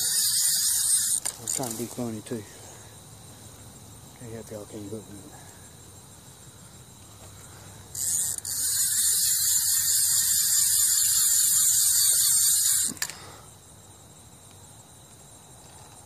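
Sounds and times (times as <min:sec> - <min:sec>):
fishing reel drag buzzing: 0:00.0 - 0:02.1, 0:07.8 - 0:13.4.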